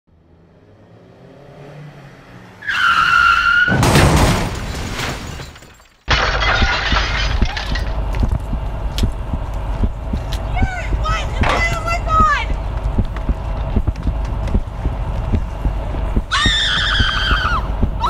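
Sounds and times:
rising engine sound: 0.1 - 2.6
tyre screech: 2.6 - 3.8, 16.3 - 17.7
loud car crash: 2.7 - 8.0.

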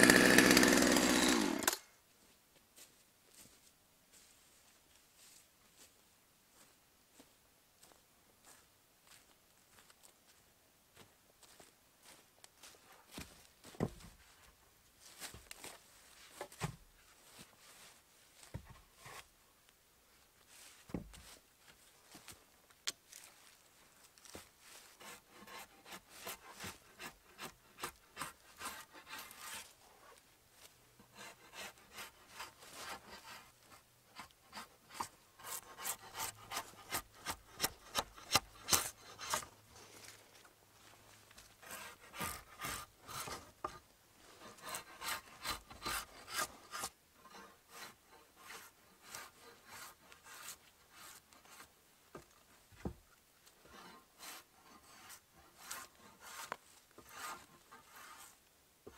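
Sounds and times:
drawknife scraping bark: 25.0 - 29.7, 31.1 - 33.5, 34.2 - 39.5, 41.6 - 43.8, 44.4 - 51.7, 53.7 - 58.4.

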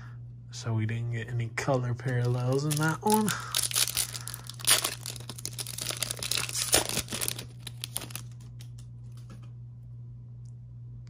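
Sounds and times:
foil wrapper crinkling and tearing: 2.0 - 8.8.

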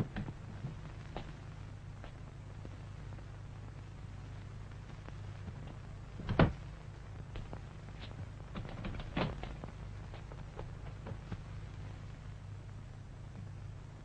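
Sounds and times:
footsteps crossing a room: 0.0 - 3.2, 4.9 - 12.0
steady low hum: 0.0 - 14.0.

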